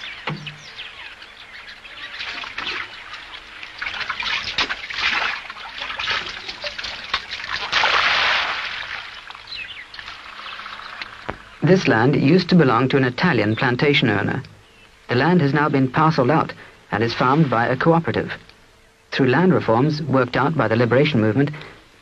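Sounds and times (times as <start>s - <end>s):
birds chirping: 0.0s - 7.8s, 8.6s - 21.9s
water splashing and pouring: 2.0s - 11.6s.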